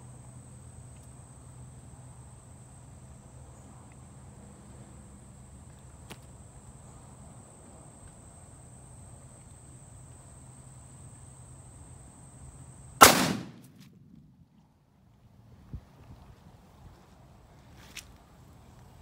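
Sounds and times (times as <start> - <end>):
rifle shot: 13.0 - 13.9.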